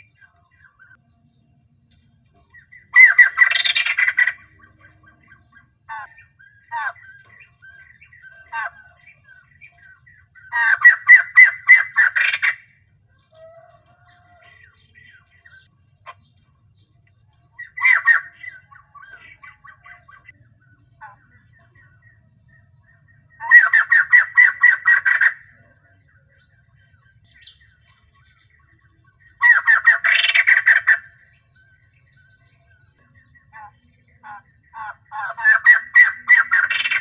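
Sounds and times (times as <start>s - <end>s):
bird cackling calls: 2.5s - 16.3s, 17.6s - 20.3s, 23.3s - 25.6s, 29.2s - 31.4s, 33.5s - 37.0s
soft bird chattering: 2.5s - 16.4s, 17.5s - 31.2s, 32.2s - 37.0s.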